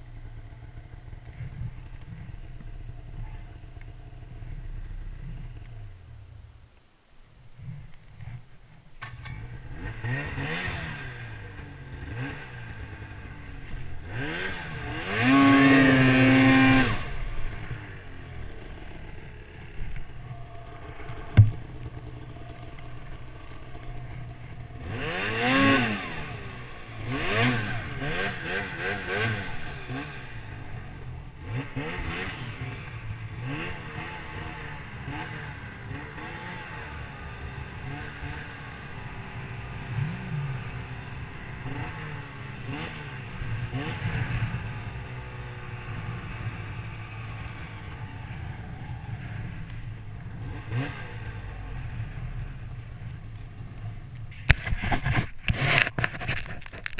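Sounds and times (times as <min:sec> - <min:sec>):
snowmobile engine revving: 0:09.4 - 0:52.9.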